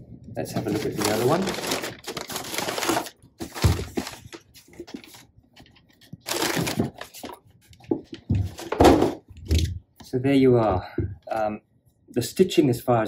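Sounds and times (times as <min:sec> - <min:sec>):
tissue paper and cardboard rustling: 0:00.5 - 0:05.3, 0:06.0 - 0:09.0.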